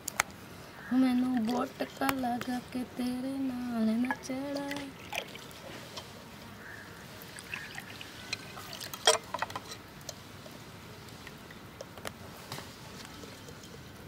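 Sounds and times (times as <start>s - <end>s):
juice pouring into glasses: 7.3s - 9.4s.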